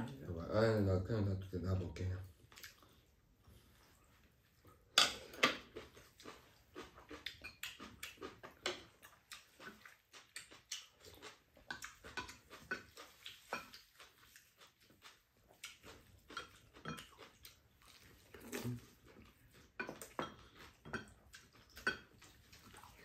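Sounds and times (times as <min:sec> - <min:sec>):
chewing and slurping: 0:02.3 - 0:23.0.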